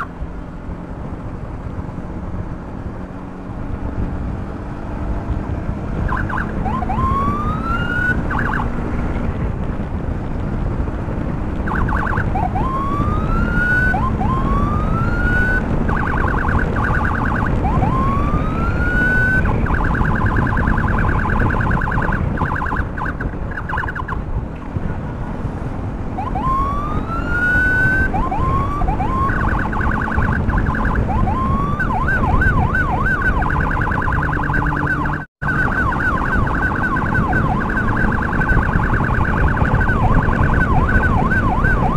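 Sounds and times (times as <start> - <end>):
heavy wind: 0.0 - 41.9
motorcycle road noise: 0.0 - 41.9
electronic siren whooping and warbling: 6.0 - 8.8, 11.6 - 24.2, 26.1 - 41.9.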